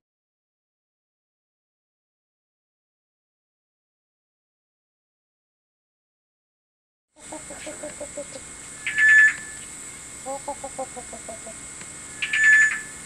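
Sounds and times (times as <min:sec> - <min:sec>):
high trilled bird call: 0:07.2 - 0:13.0
hornbill low clucking: 0:07.2 - 0:13.0.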